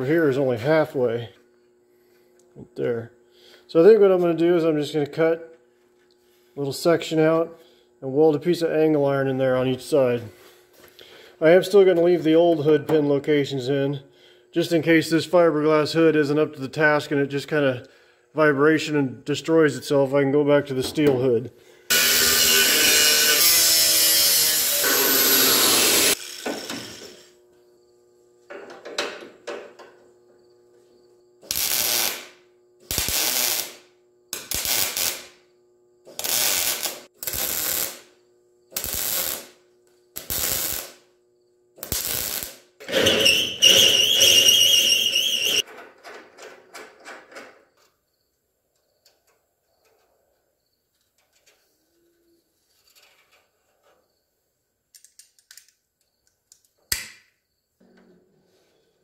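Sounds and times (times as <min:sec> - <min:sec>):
faint steady hum: 0:00.0 - 0:22.6
angle grinder cutting steel: 0:21.9 - 0:27.3, 0:41.9 - 0:45.6
welder tack welds: 0:21.9 - 0:27.4, 0:31.4 - 0:41.1, 0:41.8 - 0:45.6.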